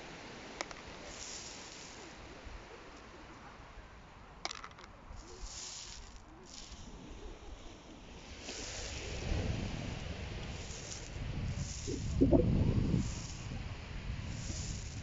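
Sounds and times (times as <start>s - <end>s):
soft hissing: 0.3s - 3.0s, 5.1s - 9.2s, 10.4s - 13.6s
pebbles clicking and rattling: 4.5s - 6.8s
low rumble: 11.9s - 12.9s.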